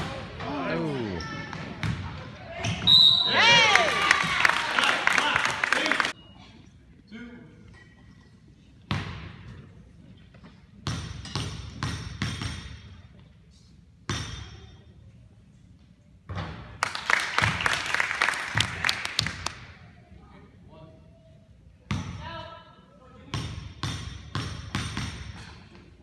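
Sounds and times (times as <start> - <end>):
basketball bouncing in gym: 1.2 - 2.9, 8.9 - 9.6, 10.8 - 13.2, 14.1 - 14.7, 21.9 - 22.2, 23.3 - 25.9.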